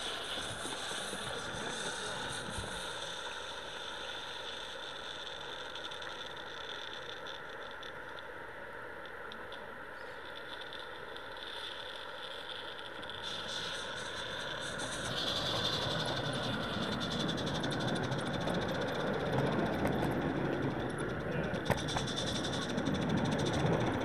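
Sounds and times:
model locomotive wheels rattling on track: 0:00.0 - 0:08.0, 0:10.4 - 0:24.0.

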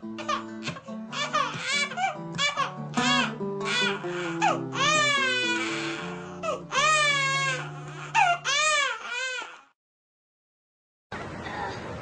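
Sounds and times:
music with held low notes: 0:00.0 - 0:08.2.

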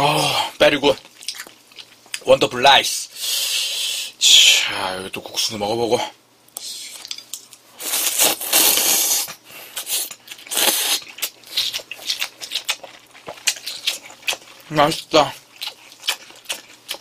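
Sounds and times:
wet chewing: 0:01.0 - 0:02.2, 0:06.6 - 0:17.0
person slurping noodles: 0:07.8 - 0:11.1.

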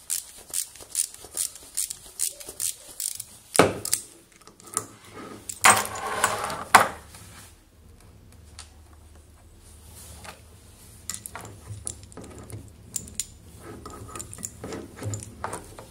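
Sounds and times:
metal clicks and clatter: 0:11.1 - 0:15.9.

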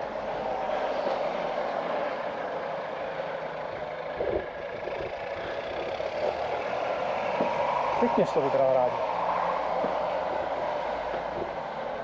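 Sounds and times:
rushing outdoor background noise: 0:00.0 - 0:12.0.

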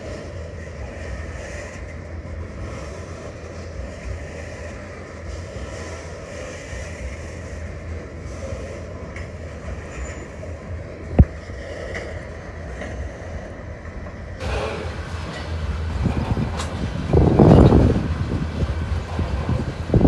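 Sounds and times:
train wheels rumbling on rail: 0:00.0 - 0:20.0
wind gust on microphone: 0:13.5 - 0:20.0.

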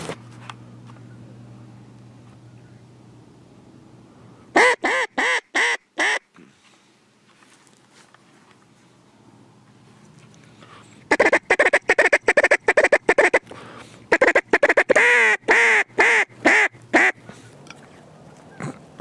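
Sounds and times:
duck call quacking: 0:04.5 - 0:06.3, 0:11.1 - 0:13.5, 0:14.1 - 0:17.2.

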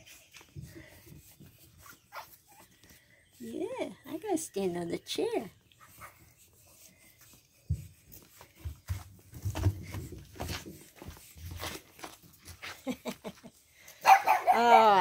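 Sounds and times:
puppies scuffling on wooden deck: 0:05.8 - 0:13.4
soft knocks and rustles: 0:07.6 - 0:12.3.

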